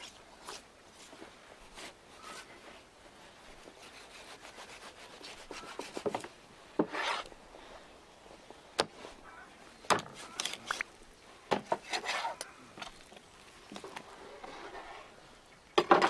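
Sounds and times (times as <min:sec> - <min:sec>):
knife scraping through raw meat: 0:11.8 - 0:12.4.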